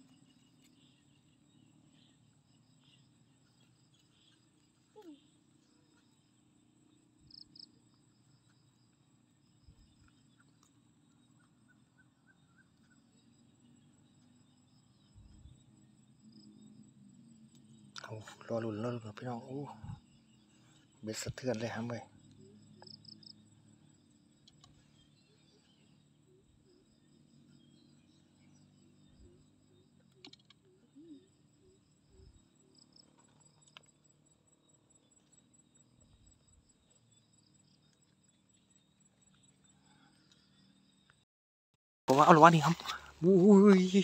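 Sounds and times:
insect trilling: 0.0s - 41.1s, 42.1s - 44.0s.

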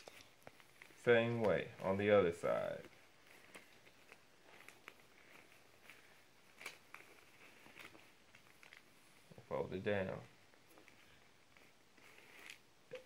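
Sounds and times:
paper rustling and crinkling: 0.0s - 12.7s.

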